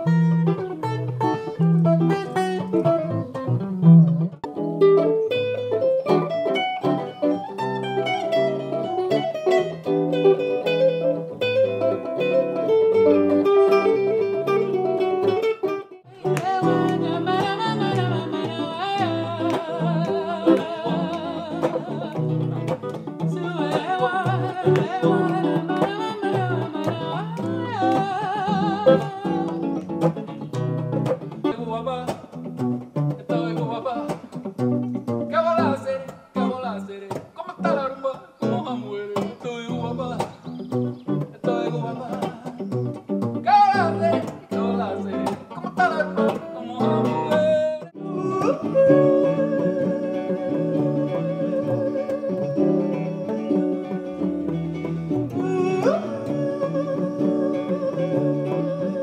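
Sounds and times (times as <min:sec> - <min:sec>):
guitars playing picked passage: 0:00.0 - 0:59.0
man singing with vibrato: 0:16.1 - 0:30.4, 0:31.3 - 0:59.0.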